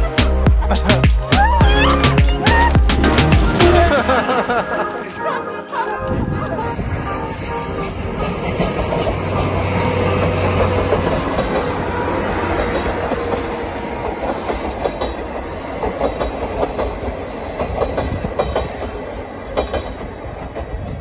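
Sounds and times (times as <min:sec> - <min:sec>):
steam locomotive rumbling past: 0:01.9 - 0:04.7, 0:06.1 - 0:21.0
train wheels clacking over rail joints: 0:08.4 - 0:21.0.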